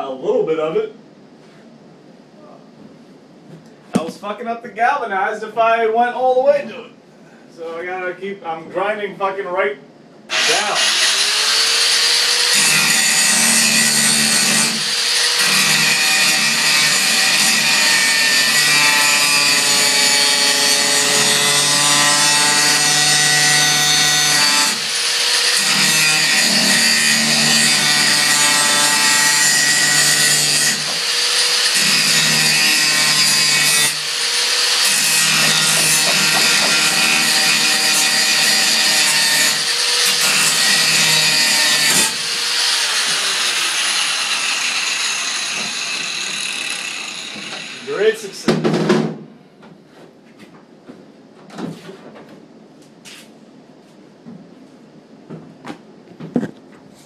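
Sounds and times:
angle grinder grinding metal: 10.3s - 48.3s.

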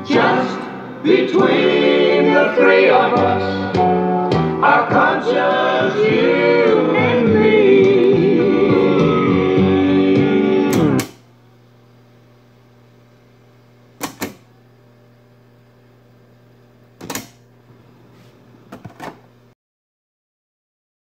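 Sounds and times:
guitar music from speaker: 0.0s - 11.1s
push button clicks: 14.0s - 14.5s, 17.0s - 17.4s.

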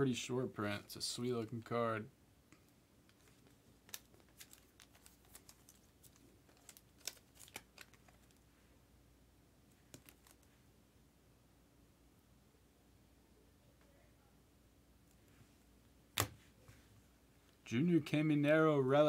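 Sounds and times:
plastic clicks and rustles: 3.0s - 8.4s, 9.8s - 10.5s.

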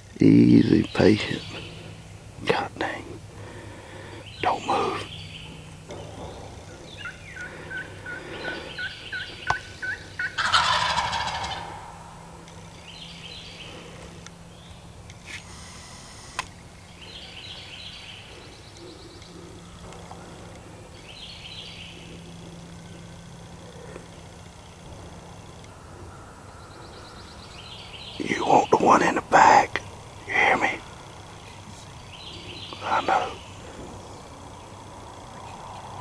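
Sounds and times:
turkey gobbling: 6.2s - 12.0s
turkey yelps: 7.0s - 11.8s.

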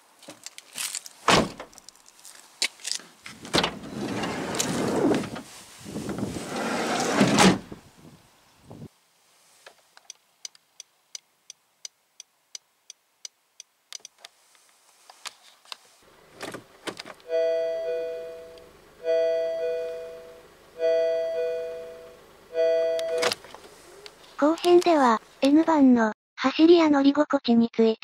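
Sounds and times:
car door thud: 1.3s - 1.7s
reverse warning buzzer: 17.3s - 23.3s.

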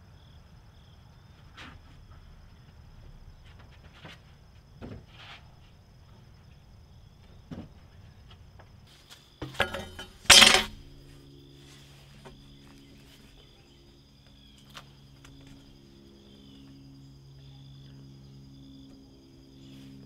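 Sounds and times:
high insect chirping: 5.6s - 20.0s
loud ringing clatter: 9.5s - 10.9s.

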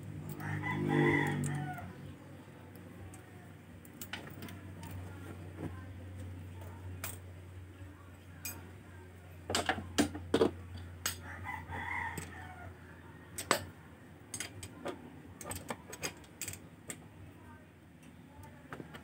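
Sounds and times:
rooster crowing: 0.3s - 2.0s, 11.2s - 13.2s.

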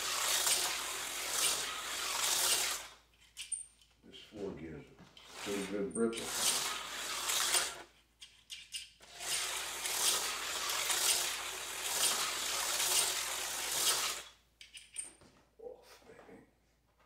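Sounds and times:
slot car motor whirring: 0.0s - 3.0s, 5.2s - 7.9s, 9.0s - 14.4s.

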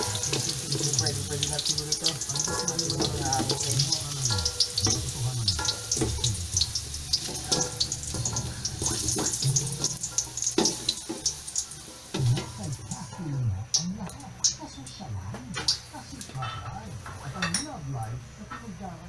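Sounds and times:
spatula stirring in pan: 0.0s - 13.0s
potatoes sizzling in oil: 0.0s - 13.1s.

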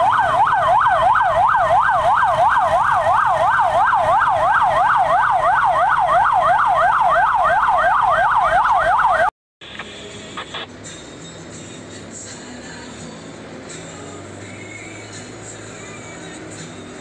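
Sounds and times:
emergency siren yelping: 0.0s - 9.3s.

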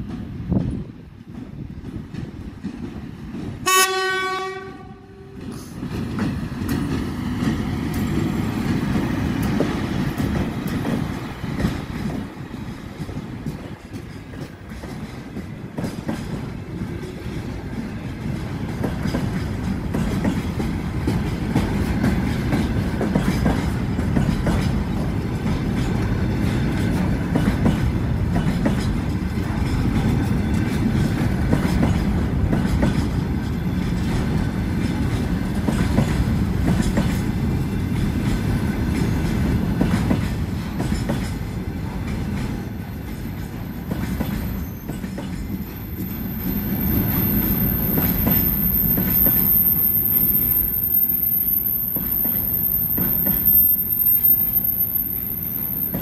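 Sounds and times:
locomotive horn blast: 3.6s - 5.5s
train wheels clattering over rail joints: 5.4s - 49.5s.

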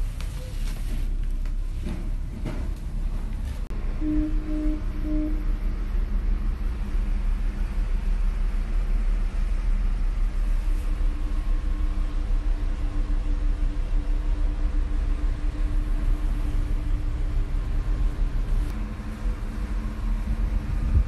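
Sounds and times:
low rumble: 0.0s - 21.0s
short low tones: 3.8s - 5.9s.

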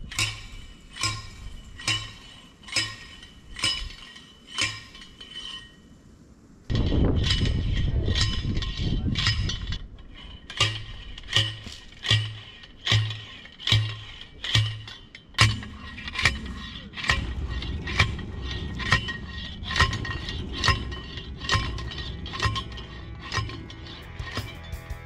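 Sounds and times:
post driver clanging on metal: 6.7s - 25.0s
steady rushing noise: 15.0s - 25.0s.

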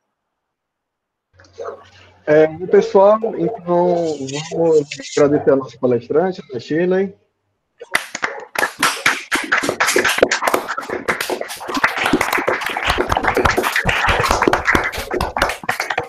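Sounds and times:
people clapping: 7.8s - 16.0s.

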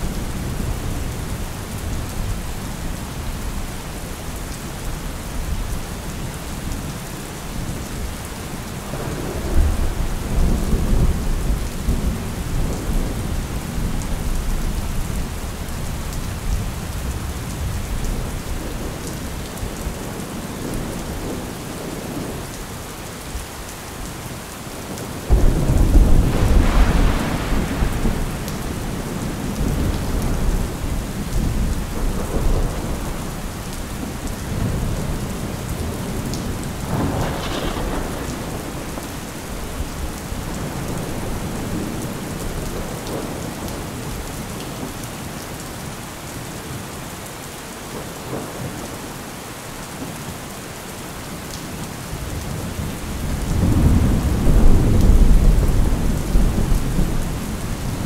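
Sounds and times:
steady rain: 0.0s - 58.0s
rolling thunder: 8.8s - 15.2s, 25.3s - 43.9s, 52.4s - 58.0s
sharp thunder crack: 25.3s - 30.5s, 36.9s - 39.0s.

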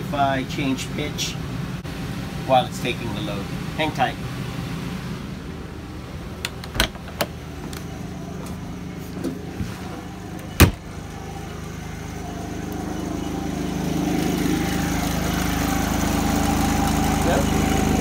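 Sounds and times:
generator running: 0.0s - 18.0s
door latch clicks: 6.4s - 7.8s
door banging shut: 6.5s - 7.7s, 10.6s - 10.9s.

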